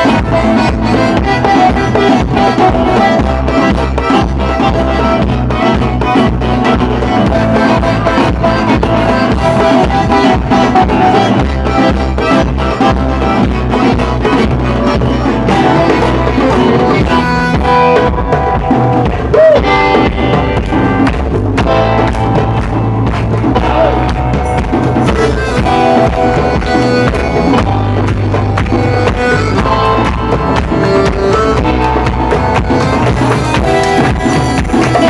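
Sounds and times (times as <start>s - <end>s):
bass: 0.0s - 35.0s
hand drum beat: 0.0s - 35.0s.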